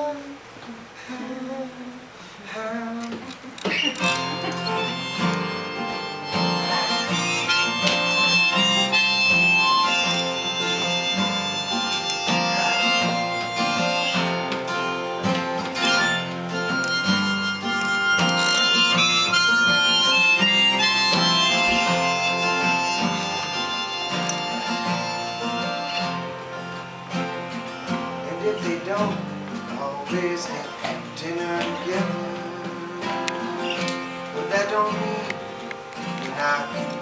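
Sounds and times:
strummed acoustic guitar: 0.0 - 37.0
harmonica playing melody: 3.7 - 29.0, 30.4 - 37.0.

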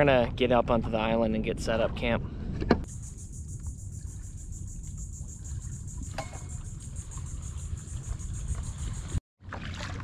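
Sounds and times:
insects trilling: 2.9 - 9.2.

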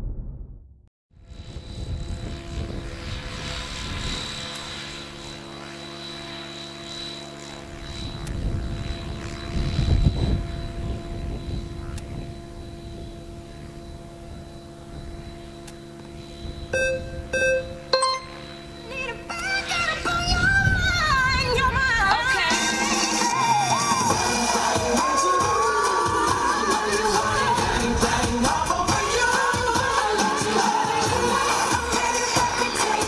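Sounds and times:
rush of helicopter blades: 1.2 - 16.7, 18.4 - 33.0
rc helicopter motor and rotor whine: 1.2 - 16.8.

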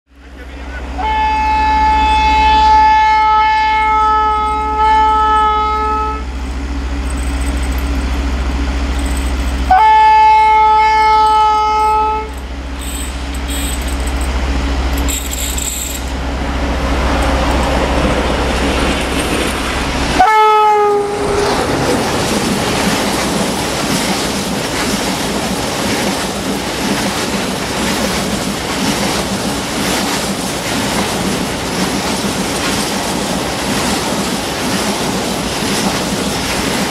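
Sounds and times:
locomotive horn blasts: 0.8 - 6.3, 9.7 - 12.3, 20.1 - 21.4
train wheels clickety-clack: 21.3 - 36.9.

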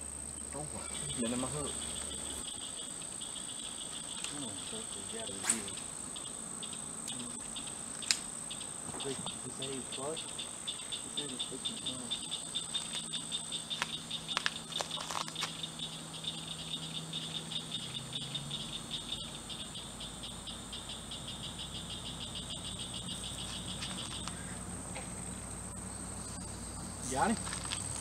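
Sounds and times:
animal trill: 0.4 - 28.0
very high whine: 11.1 - 28.0.

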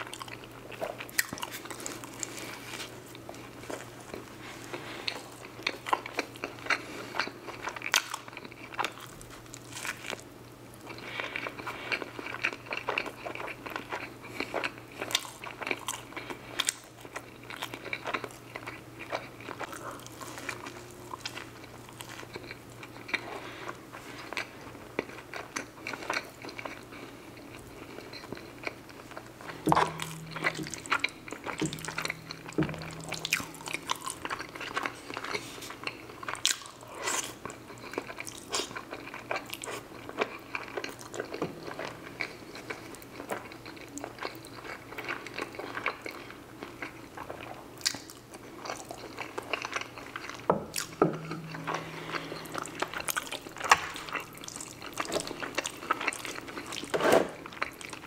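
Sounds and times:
chewing and wet mouth sounds: 0.0 - 58.0
low hums: 29.4 - 35.6, 50.8 - 55.6.

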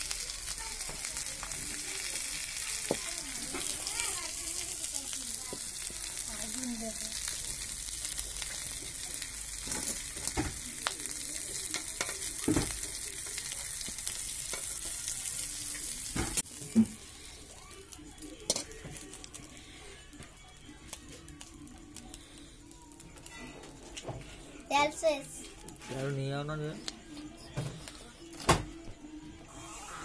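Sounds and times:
fish sizzling in hot oil: 0.0 - 26.7
metal spatula scraping a wok: 29.5 - 30.0.

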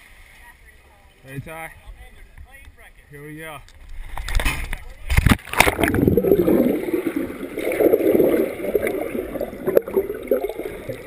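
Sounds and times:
underwater bubbling: 5.1 - 11.0
person splashing into water: 5.2 - 10.9.

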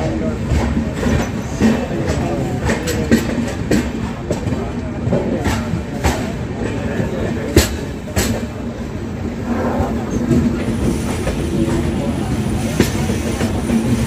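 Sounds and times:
wheels clacking over rail joints: 0.0 - 8.9
train wheels rumbling on track: 0.0 - 14.0.

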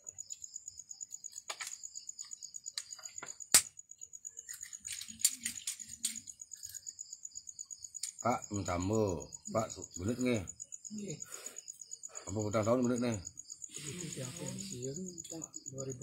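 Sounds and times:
high insect trill: 0.0 - 16.0
sharp clicks of objects handled: 1.3 - 3.7, 4.5 - 6.8.

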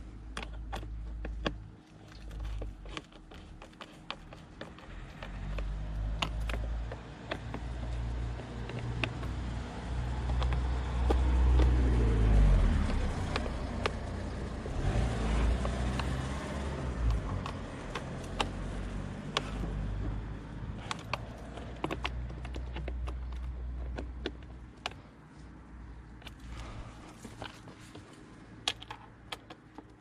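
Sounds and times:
car passing rumble: 4.9 - 23.8.

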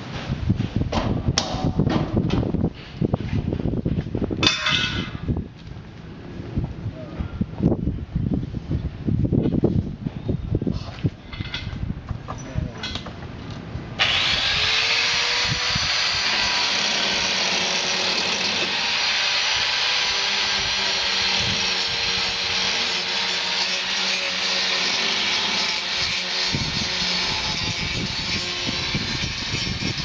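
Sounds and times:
angle grinder grinding metal: 14.0 - 30.0.

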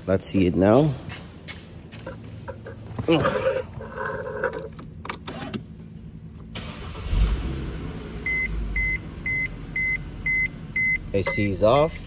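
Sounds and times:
car engine starting and running: 2.0 - 12.0
car warning chime beeping: 8.2 - 12.0.

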